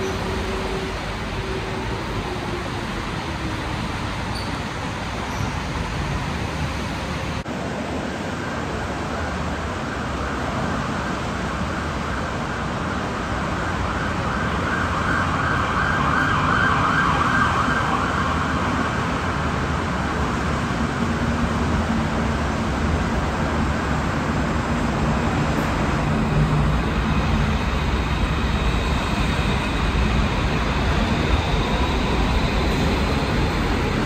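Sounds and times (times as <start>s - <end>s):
train rolling: 0.0s - 14.7s, 18.4s - 34.0s.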